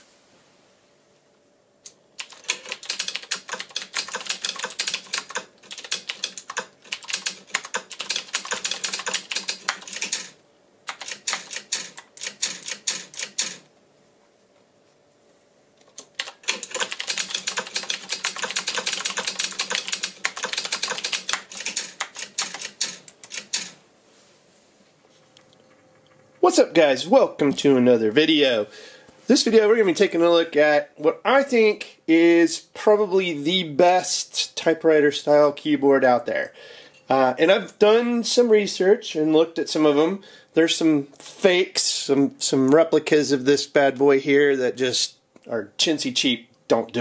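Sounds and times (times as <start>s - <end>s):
mechanical keyboard typing: 2.2s - 13.6s, 16.0s - 23.8s.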